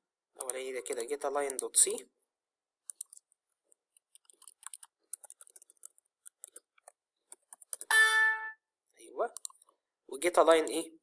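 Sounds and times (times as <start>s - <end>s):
mouse clicks: 2.9s - 3.4s
keyboard keys clicking: 4.0s - 7.9s.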